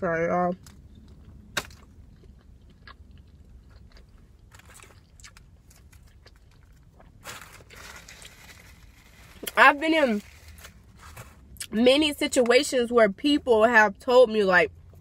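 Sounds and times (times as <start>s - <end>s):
person chewing food: 0.7s - 7.7s.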